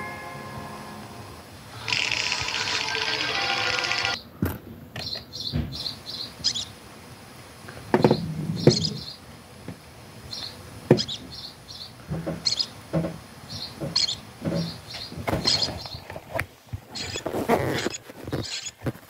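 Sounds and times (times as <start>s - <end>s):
low knocks and thumps: 7.9s - 9.0s, 12.1s - 15.6s.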